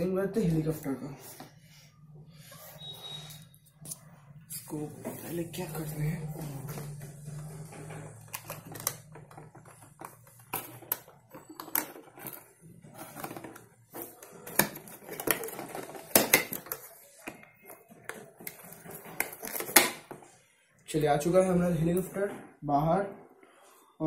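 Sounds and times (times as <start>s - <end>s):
cardboard rustling: 4.9s - 20.3s.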